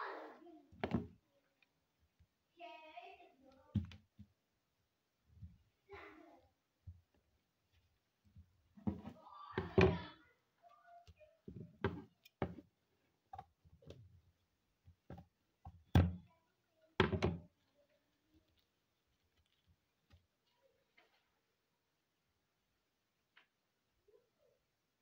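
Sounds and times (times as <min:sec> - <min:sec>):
objects knocking on a table: 0:00.8 - 0:01.1, 0:08.8 - 0:10.1, 0:11.5 - 0:12.7, 0:17.0 - 0:17.5.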